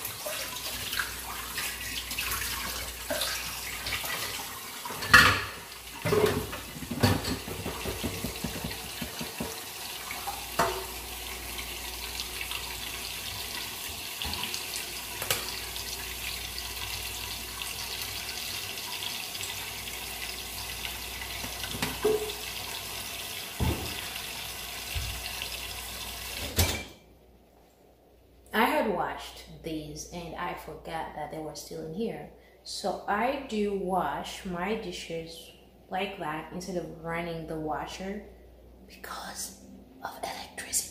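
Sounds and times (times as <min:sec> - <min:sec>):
dishes clinking: 0:04.9 - 0:09.6, 0:10.6 - 0:10.9, 0:21.7 - 0:22.4, 0:26.4 - 0:27.0
tap running into sink: 0:06.0 - 0:11.0, 0:21.3 - 0:22.5, 0:23.5 - 0:24.2, 0:24.8 - 0:25.4.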